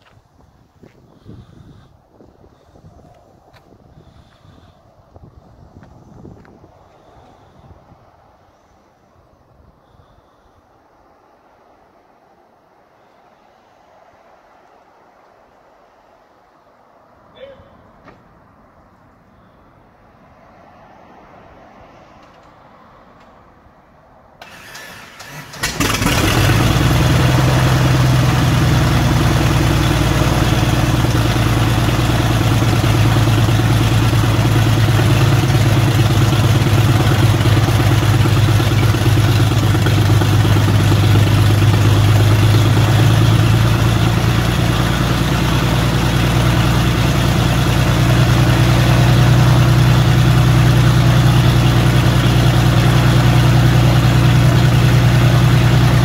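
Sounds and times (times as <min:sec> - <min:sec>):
piston aircraft engine cranking: 0:24.4 - 0:26.3
piston aircraft engine idling: 0:24.4 - 0:56.0.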